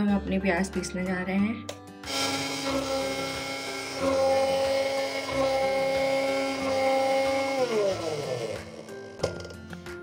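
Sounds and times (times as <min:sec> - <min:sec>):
mixer grinder motor whining: 0:02.0 - 0:09.6.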